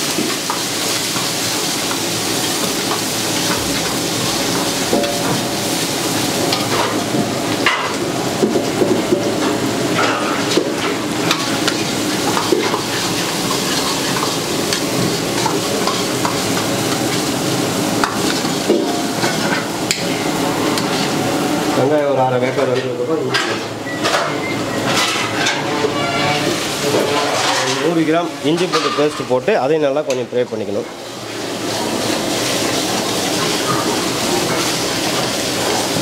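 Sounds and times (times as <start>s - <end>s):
onions sizzling in hot oil: 0.0s - 22.6s, 24.8s - 29.7s, 30.4s - 36.0s
ladle scraping and clinking pan: 23.3s - 28.0s.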